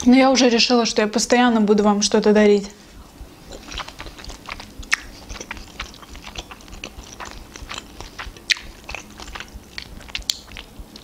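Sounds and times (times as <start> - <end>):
close-up chewing: 3.0 - 11.0
wet mouth clicks: 3.4 - 11.0.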